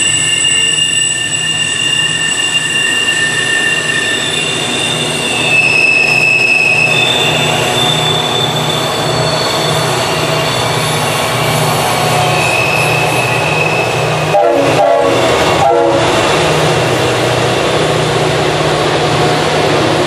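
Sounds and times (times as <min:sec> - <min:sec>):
diesel locomotive engines: 0:00.0 - 0:20.0
rumble of train wheels: 0:00.0 - 0:20.0
locomotive horn blasts: 0:14.2 - 0:16.2.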